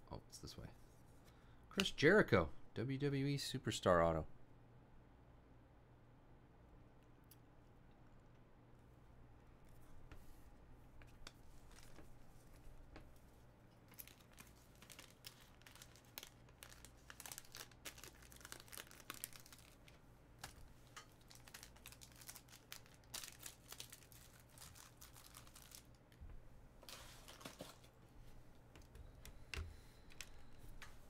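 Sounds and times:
packaging crinkling: 0:11.2 - 0:12.6, 0:13.8 - 0:20.6, 0:21.2 - 0:26.0, 0:26.8 - 0:28.0.

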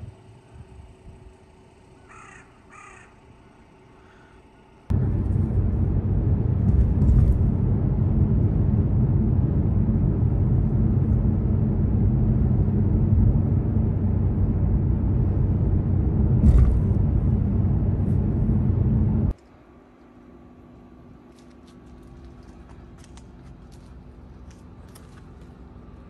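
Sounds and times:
car road and engine rumble: 0:04.9 - 0:19.4.

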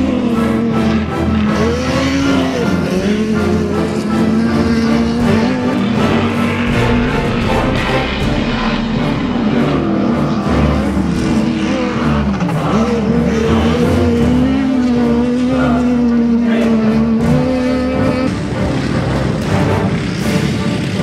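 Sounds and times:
race vehicle engine running: 0:00.0 - 0:21.0
rock music: 0:00.0 - 0:21.0.

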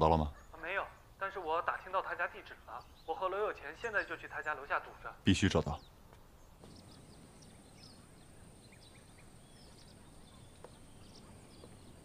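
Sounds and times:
bird chirps: 0:00.0 - 0:12.0
steady high hiss: 0:06.4 - 0:12.0.

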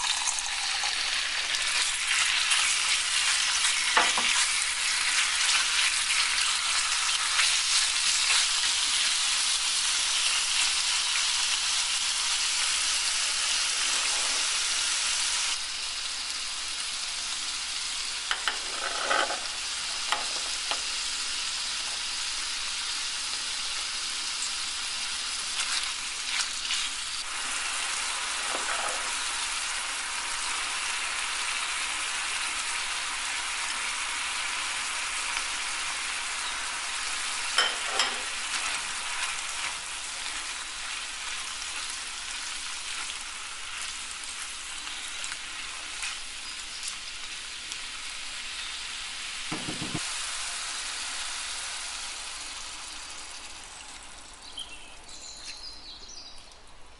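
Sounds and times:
chicken sizzling in hot oil: 0:00.0 - 0:55.2
spatula scraping skillet: 0:13.4 - 0:14.8, 0:18.3 - 0:21.0, 0:28.2 - 0:29.4, 0:37.4 - 0:42.0.

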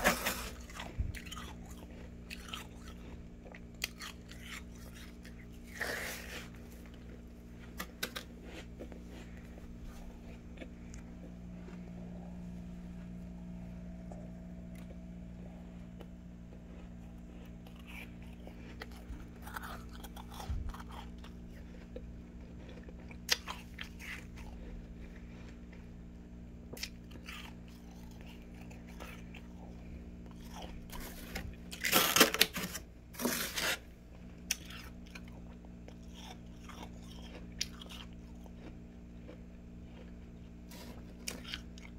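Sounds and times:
plastic spoon scraping frost: 0:00.0 - 0:00.8, 0:05.6 - 0:09.5, 0:30.9 - 0:33.9
steady low hum: 0:00.0 - 0:41.9.

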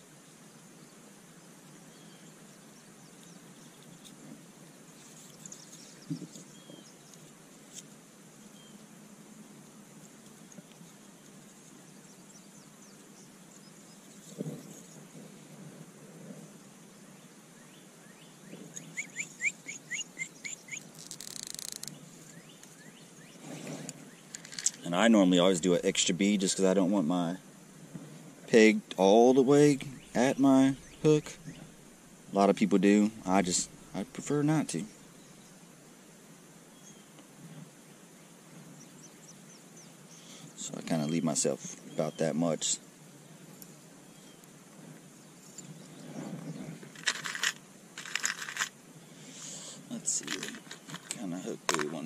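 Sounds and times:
songbird chirping: 0:00.0 - 0:15.4, 0:16.5 - 0:27.6, 0:28.4 - 0:52.0
faint outdoor background noise: 0:00.0 - 0:52.0
faint bird chirps: 0:00.2 - 0:07.3, 0:08.4 - 0:08.9, 0:17.0 - 0:24.9, 0:29.0 - 0:32.3, 0:43.6 - 0:44.5
fishing line clicking and rustling: 0:20.7 - 0:22.8, 0:23.6 - 0:24.8, 0:46.8 - 0:48.8, 0:50.0 - 0:52.0.

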